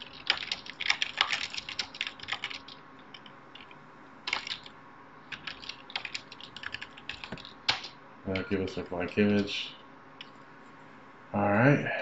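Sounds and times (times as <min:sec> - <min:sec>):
typing on computer keyboard: 0:00.0 - 0:04.7, 0:05.3 - 0:08.5.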